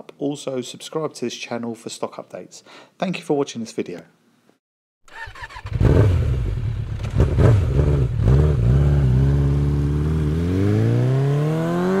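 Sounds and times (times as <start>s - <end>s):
motorcycle engine revving: 5.1s - 12.0s.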